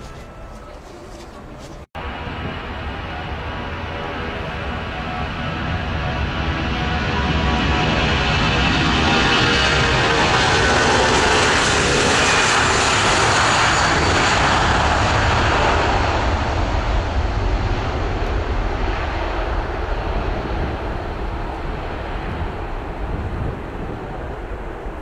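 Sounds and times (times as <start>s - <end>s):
jet engines at takeoff thrust: 2.0s - 25.0s.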